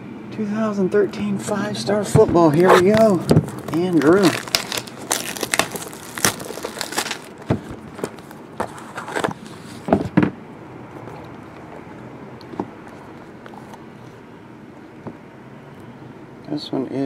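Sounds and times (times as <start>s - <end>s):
plastic shrink-wrap crinkling: 2.6s - 9.3s.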